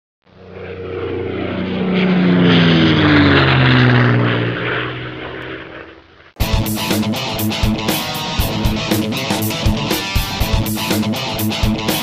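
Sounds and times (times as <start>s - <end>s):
airplane flying by: 0.2s - 12.0s.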